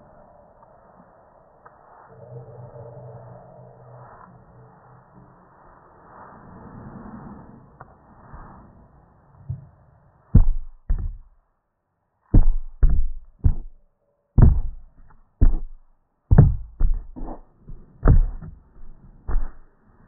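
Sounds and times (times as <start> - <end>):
fingers tapping phone microphone: 10.4 - 11.3, 12.4 - 13.8, 14.4 - 19.6.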